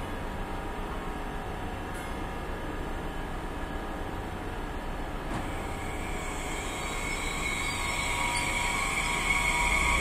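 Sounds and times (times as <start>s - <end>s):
electric train rumbling and humming: 0.0s - 10.0s.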